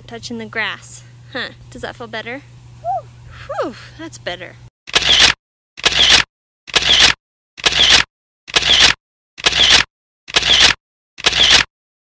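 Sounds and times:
camera shutter clicks: 4.9s - 11.7s.

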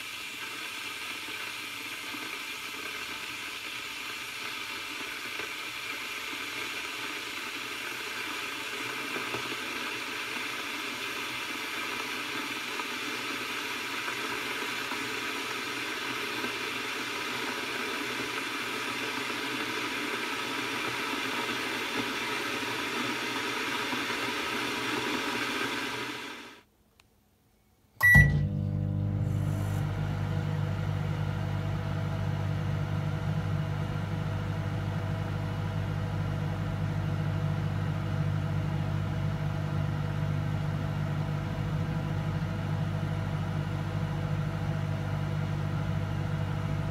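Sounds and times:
electric kettle heating water: 0.0s - 26.6s, 28.0s - 46.9s
short beep: 28.0s - 28.8s
microwave oven humming: 28.0s - 46.9s.

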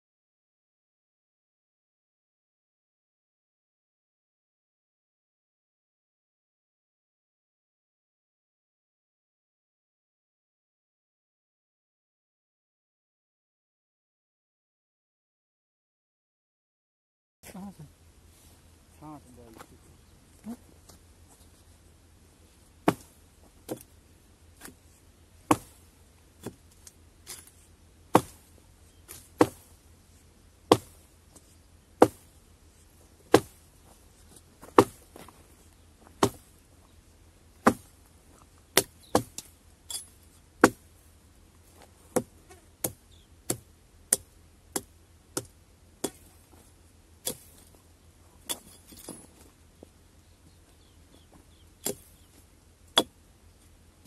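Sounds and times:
axe chopping wood: 22.8s - 23.9s, 25.5s - 26.6s, 27.2s - 28.5s, 29.1s - 29.8s, 30.7s - 31.0s, 32.0s - 32.3s, 33.3s - 33.6s, 34.6s - 35.3s, 36.1s - 36.6s, 37.6s - 38.0s, 38.8s - 39.5s, 40.6s - 40.9s, 42.1s - 46.6s, 47.2s - 47.8s, 48.4s - 49.2s, 51.8s - 52.1s, 53.0s - 53.2s.

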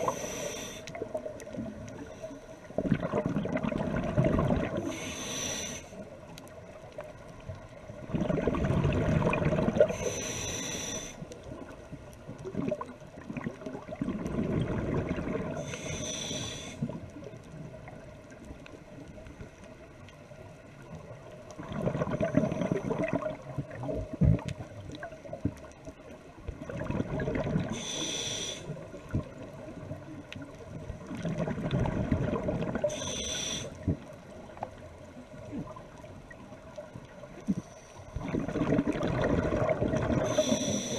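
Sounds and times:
regulator hissing inhales: 0.0s - 1.0s, 4.8s - 6.1s, 9.9s - 11.3s, 15.6s - 17.0s, 27.7s - 28.8s, 32.8s - 33.9s, 40.2s - 40.9s
exhaled air bubbling: 0.0s - 19.6s, 20.8s - 40.9s.

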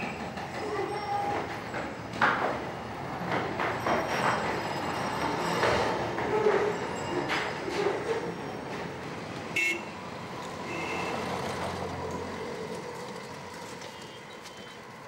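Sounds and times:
street traffic: 0.0s - 15.0s
vehicle horn toot: 9.6s - 9.9s, 10.6s - 11.3s, 13.8s - 14.8s.

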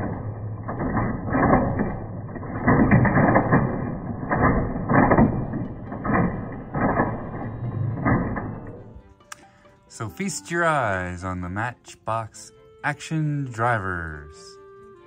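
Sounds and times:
toy volcano rumble from speaker: 0.0s - 9.0s
plastic mechanism clattering: 0.0s - 9.1s.

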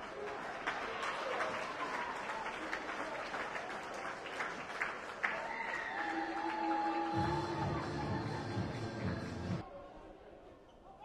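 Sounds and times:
crowd applauding: 0.0s - 8.5s.

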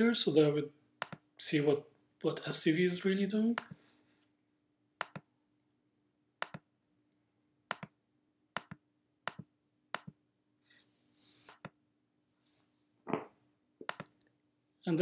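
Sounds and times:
computer mouse clicks: 1.0s - 1.2s, 5.0s - 5.3s, 6.4s - 6.6s, 7.7s - 8.0s, 8.6s - 10.2s, 11.5s - 11.8s, 13.8s - 14.3s.

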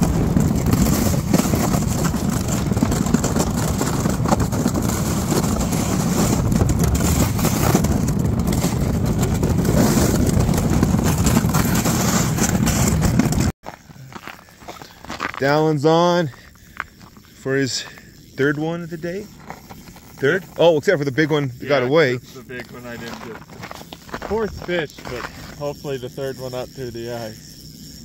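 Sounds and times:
wind rumble: 0.0s - 13.5s
small vehicle engine rumble: 0.0s - 15.0s.

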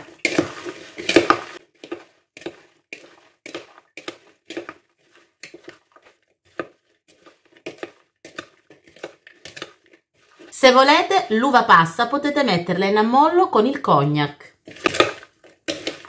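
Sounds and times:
metal spoon scraping through fruit: 0.0s - 10.8s, 14.6s - 16.0s.

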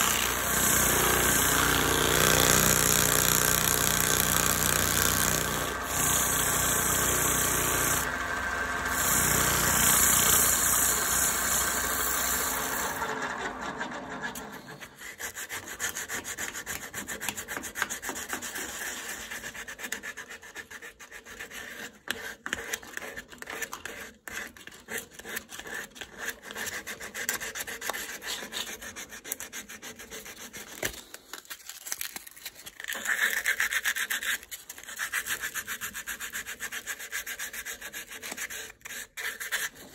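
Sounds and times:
scratchy sanding strokes: 0.0s - 8.1s, 15.0s - 30.9s, 32.9s - 39.9s
wood lathe running: 0.0s - 15.0s
file scraping spinning wood: 0.0s - 30.8s.

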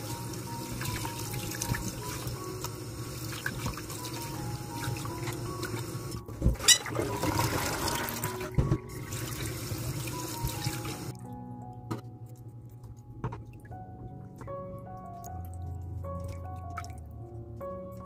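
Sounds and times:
hands rubbing and rinsing chicken: 0.0s - 11.2s.

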